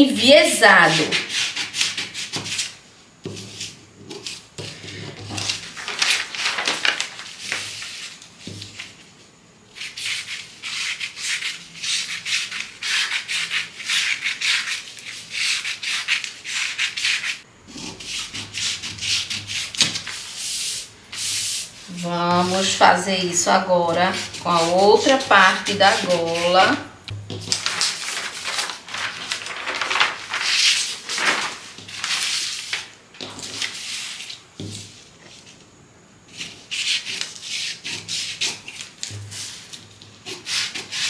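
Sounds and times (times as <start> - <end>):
paper rustling and crackling: 3.3 - 9.1, 24.1 - 35.6.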